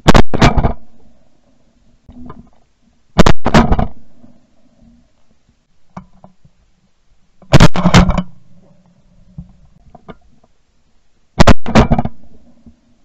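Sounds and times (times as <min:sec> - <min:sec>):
shotgun blasts: 0:00.0 - 0:00.9, 0:03.2 - 0:04.0, 0:07.5 - 0:08.2, 0:11.4 - 0:12.2.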